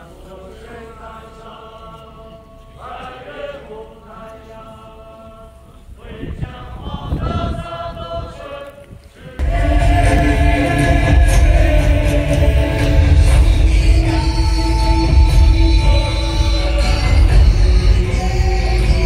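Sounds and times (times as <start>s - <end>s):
group chanting in unison: 0.0s - 19.0s
heavy drumming: 9.4s - 19.0s.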